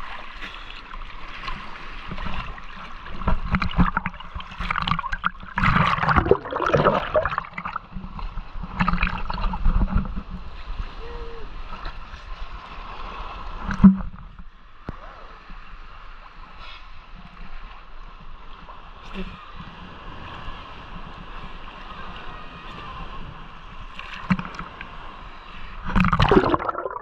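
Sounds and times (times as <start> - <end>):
paddle splashing water: 0.0 - 15.1, 18.4 - 27.0.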